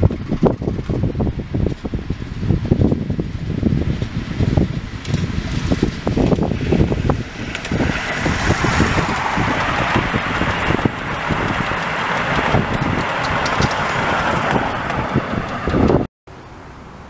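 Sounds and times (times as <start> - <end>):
wind buffeting microphone: 0.0 - 16.1
miniature train wagons rolling: 3.9 - 16.0.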